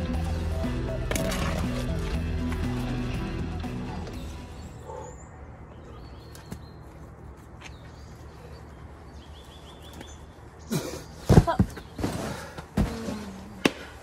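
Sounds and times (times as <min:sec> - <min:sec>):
background music: 0:00.0 - 0:04.9.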